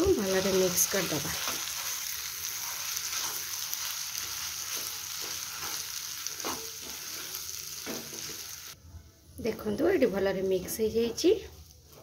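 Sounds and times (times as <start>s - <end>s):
masala sizzling in a pan: 0.0s - 12.0s
spatula scraping a pan: 0.4s - 8.4s.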